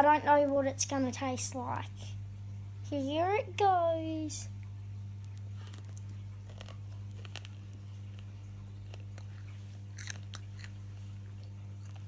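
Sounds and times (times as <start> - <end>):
low electrical hum: 0.0 - 12.0
wet mouth clicks chewing: 5.2 - 12.0.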